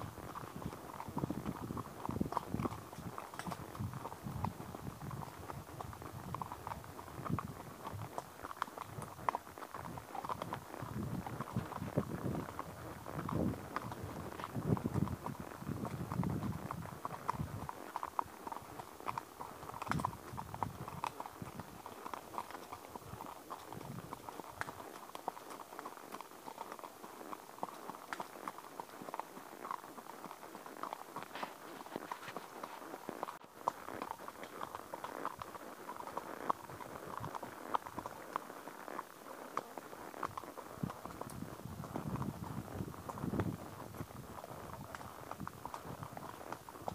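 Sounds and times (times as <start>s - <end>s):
horse hoofbeats on forest path: 0.0s - 46.9s.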